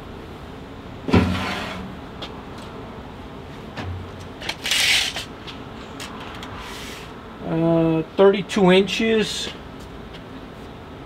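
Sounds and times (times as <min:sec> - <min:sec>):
tape measure blade pulled out: 0:04.4 - 0:05.3.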